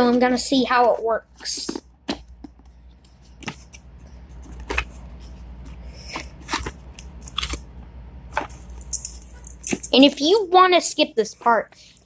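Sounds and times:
cardboard clicks and scrapes: 0.8s - 7.6s.

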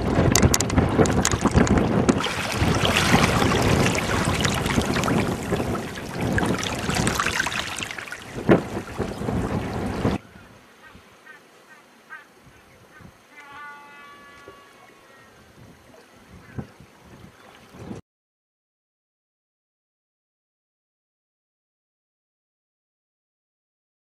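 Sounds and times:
water washing against rocks: 0.0s - 10.2s
wind buffeting microphone: 0.0s - 10.2s, 15.5s - 18.0s.

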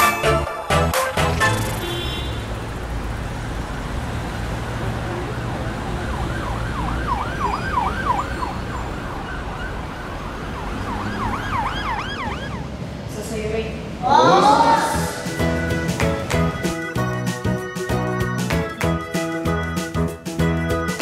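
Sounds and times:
road traffic rumble: 0.2s - 20.3s
emergency siren fast yelp: 5.3s - 12.7s.

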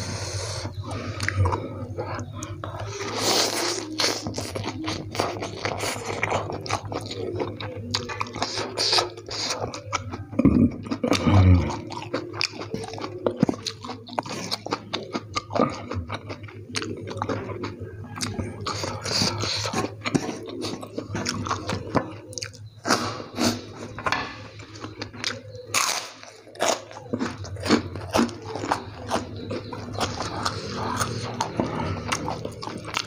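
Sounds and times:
close chewing of noodles: 0.0s - 33.0s
crunching: 10.9s - 33.0s.

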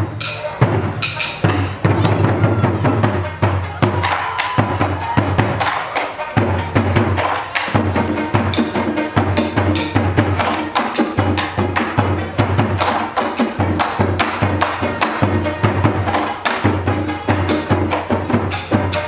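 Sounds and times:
taiko drums: 0.0s - 19.0s.

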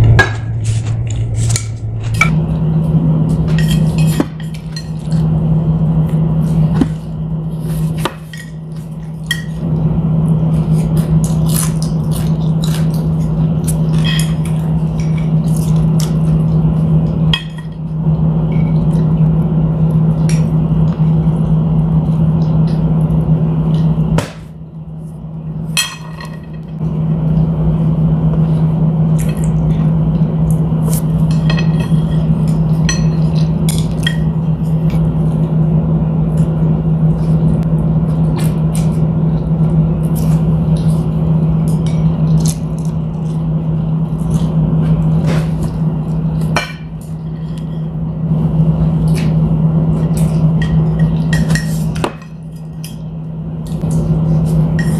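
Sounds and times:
steady low hum: 0.0s - 54.9s.

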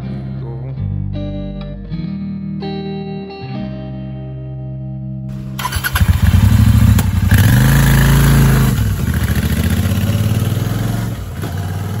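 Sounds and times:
motorcycle engine revving: 5.3s - 12.0s.

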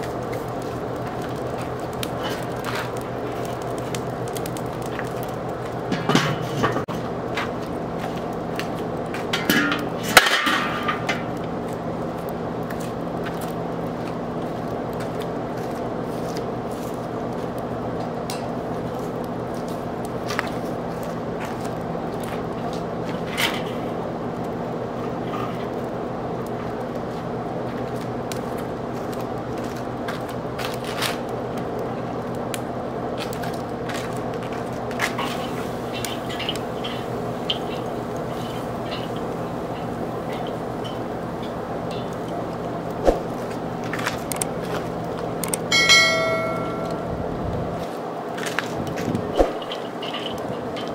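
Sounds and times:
steady low hum: 0.0s - 50.9s
metal grill lid clanking: 5.9s - 6.8s, 9.3s - 11.3s, 45.7s - 47.1s.

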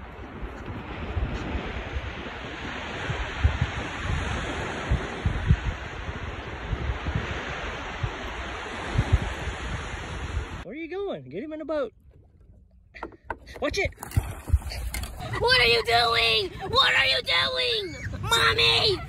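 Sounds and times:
surf washing over sandy beach: 0.0s - 10.6s
wind buffeting microphone: 0.0s - 10.6s, 13.5s - 19.0s.

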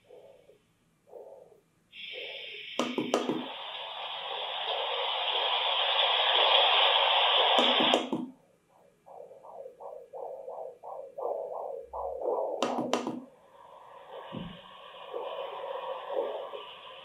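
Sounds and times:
rainfall white noise: 2.8s - 7.9s
rapid whooshing pulse: 8.7s - 17.0s.

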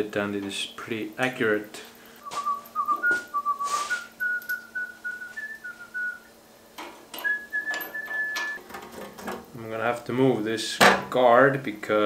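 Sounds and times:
man whistling a tune: 2.2s - 6.3s, 7.2s - 8.6s
small parts clicking: 6.8s - 9.2s.

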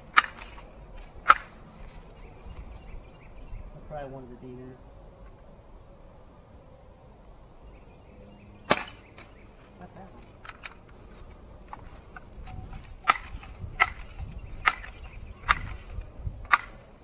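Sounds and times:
air rifle shot: 8.7s - 9.0s.

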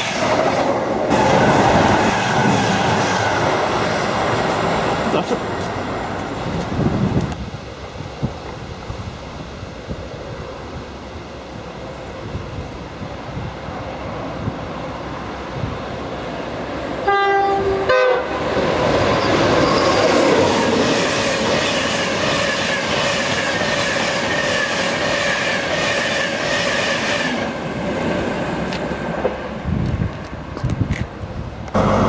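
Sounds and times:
train rushing past: 0.0s - 32.0s
two-tone train horn: 17.0s - 18.5s.

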